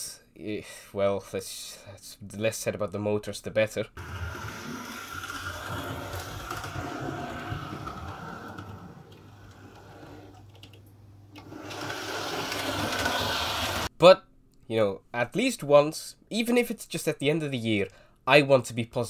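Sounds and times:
model train motor whirring: 4.0s - 10.4s, 11.4s - 13.9s.

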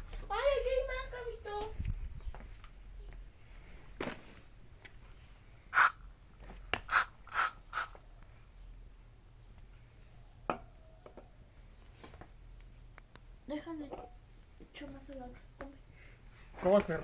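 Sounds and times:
aerosol spray hissing: 5.8s - 6.0s, 6.9s - 8.0s.

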